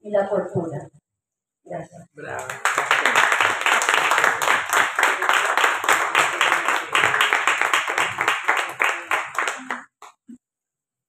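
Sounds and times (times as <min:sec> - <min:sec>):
audience applauding: 0:02.3 - 0:10.1.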